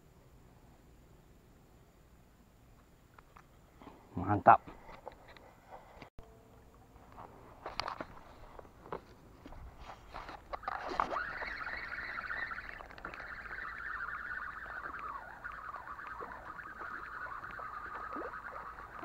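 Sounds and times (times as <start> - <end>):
spinning reel whirring: 10.5 - 19.0.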